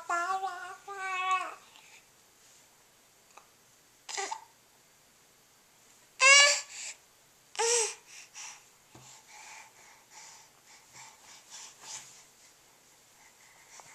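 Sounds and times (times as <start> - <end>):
baby babbling: 0.0 - 1.7, 4.1 - 4.5, 6.2 - 6.8, 7.6 - 8.0
baby squealing: 6.2 - 6.7.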